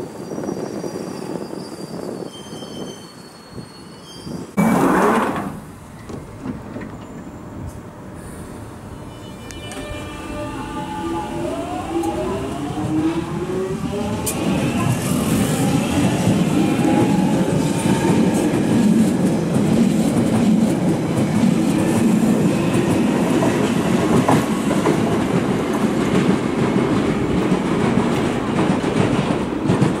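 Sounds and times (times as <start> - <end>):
clicks of passing train cars: 4.7 - 8.0, 9.4 - 10.1, 14.0 - 15.2, 16.0 - 30.0
train wheels rumbling on rails: 9.4 - 30.0.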